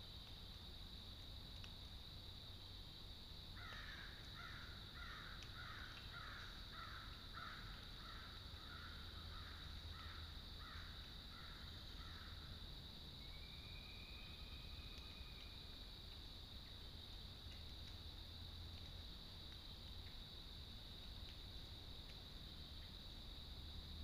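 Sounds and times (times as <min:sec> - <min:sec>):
crow cawing: 0:03.6 - 0:12.3.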